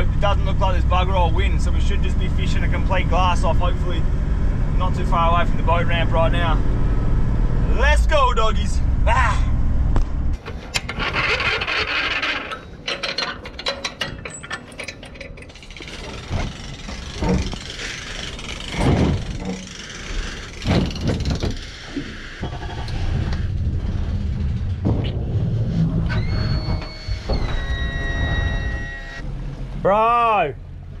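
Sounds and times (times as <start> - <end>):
knocks and bumps: 10.0 - 28.8
hand winch clicking: 10.4 - 23.5
outboard motor idling: 15.4 - 24.3.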